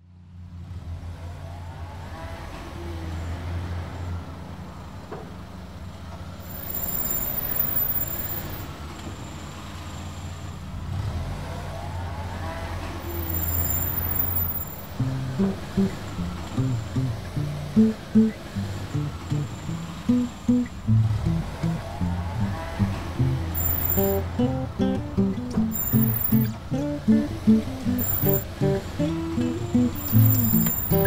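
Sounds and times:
faint gliding tones: 13.0 - 24.9, 25.6 - 31.0
plucked music notes: 15.0 - 31.0.

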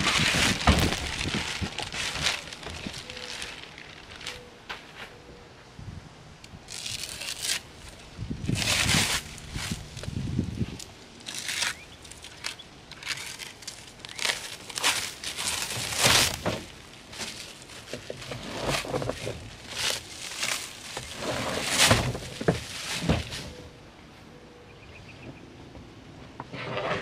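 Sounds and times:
plastic wrapping crinkling: 0.0 - 4.5, 11.2 - 23.4.

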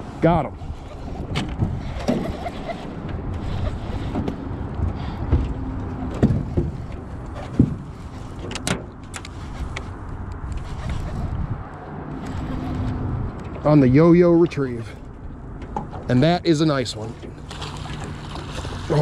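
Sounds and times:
wind on microphone: 0.0 - 8.4, 9.2 - 13.4
sharp knocks on boat: 7.4 - 7.9.

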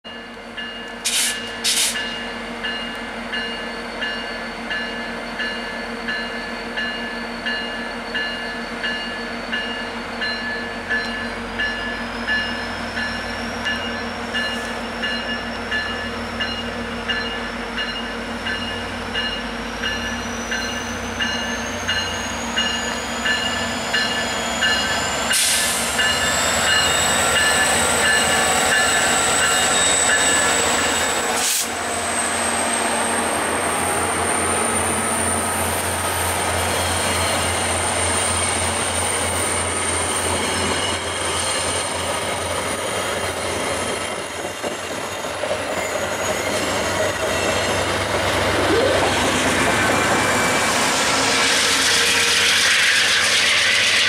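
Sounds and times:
locomotive bell ringing: 0.0 - 31.3
hiss of air: 1.0 - 2.1, 25.3 - 26.0, 31.3 - 31.8
diesel locomotive rumble: 10.7 - 54.0.

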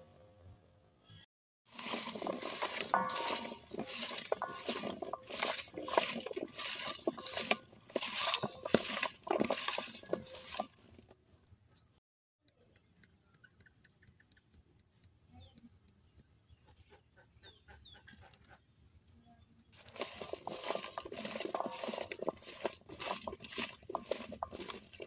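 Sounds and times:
fruit jostling in metal bowl: 1.7 - 10.8, 19.8 - 25.0.

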